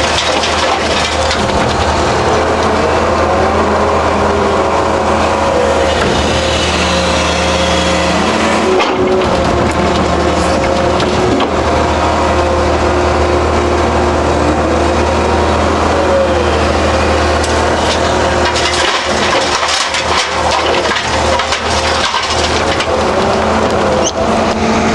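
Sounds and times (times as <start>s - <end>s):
stones and gravel clattering: 0.0s - 2.0s, 17.9s - 23.0s
excavator diesel engine running: 0.0s - 24.9s.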